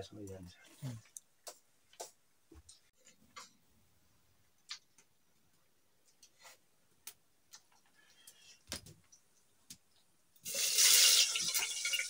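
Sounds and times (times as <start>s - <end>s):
sizzling in hot oil: 10.4s - 12.0s.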